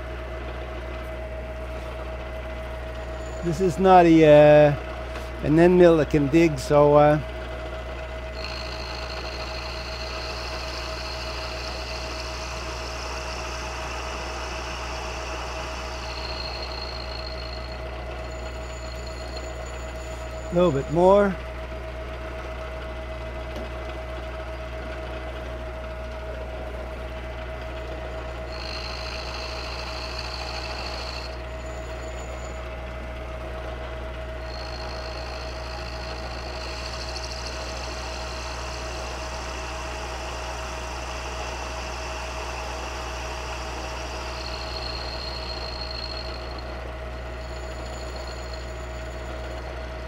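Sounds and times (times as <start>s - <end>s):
milling machine motor hum: 0.0s - 50.0s
high-pitched metal cutting noise: 8.4s - 21.0s, 28.3s - 32.4s, 34.4s - 49.4s.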